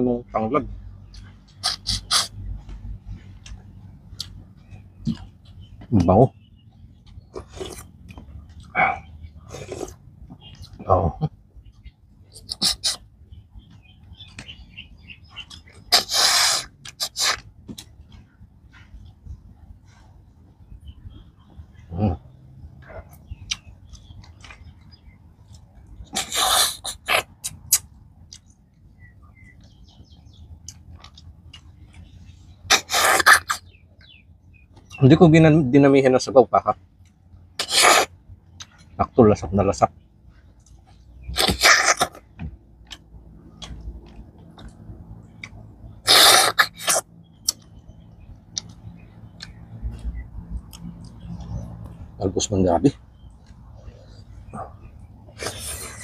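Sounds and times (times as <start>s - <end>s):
chewing and mouth clicks: 1.1s - 5.7s, 7.0s - 10.8s, 11.7s - 14.6s, 15.2s - 20.1s, 22.8s - 30.0s, 30.6s - 32.1s, 37.0s - 39.0s, 40.4s - 52.1s
sucking smacks: 1.2s - 2.8s, 12.4s - 13.1s, 15.4s - 18.9s, 25.5s - 28.5s, 32.7s - 33.7s, 37.6s - 38.8s, 40.6s - 47.8s, 54.2s - 56.0s
slurping snail meat: 1.6s - 2.4s, 12.4s - 13.0s, 15.6s - 17.9s, 26.1s - 27.8s, 32.7s - 33.6s, 37.6s - 38.1s, 41.3s - 42.3s, 46.1s - 47.6s, 55.3s - 56.0s.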